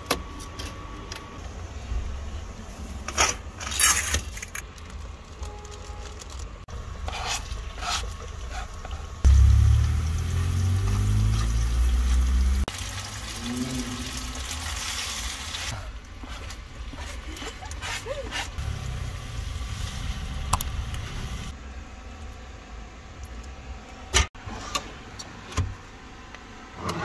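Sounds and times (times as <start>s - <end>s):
loud low rumble: 9.3s - 12.7s.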